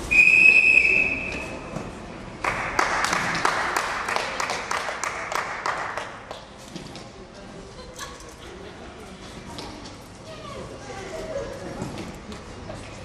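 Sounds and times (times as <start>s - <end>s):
high steady whistle: 0.0s - 1.7s
crowd clapping: 2.4s - 6.5s.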